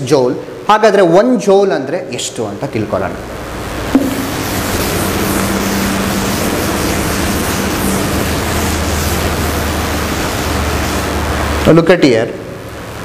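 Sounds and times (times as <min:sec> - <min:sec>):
duster scrubbing chalkboard: 0:04.0 - 0:11.5.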